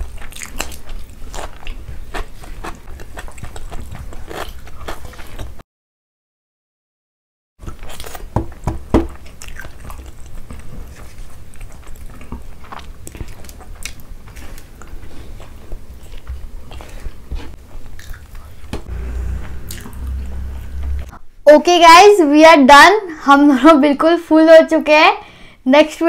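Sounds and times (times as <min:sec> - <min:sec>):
chewing and mouth sounds: 0:00.0 - 0:05.6, 0:07.6 - 0:08.3, 0:09.1 - 0:18.7.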